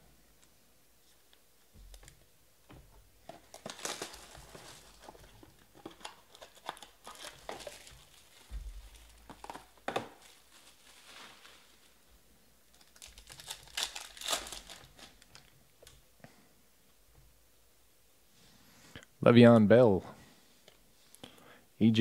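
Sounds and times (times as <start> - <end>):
foil wrappers crinkling: 3.3 - 15.6
wrapper tearing: 3.5 - 12.0, 12.7 - 15.6.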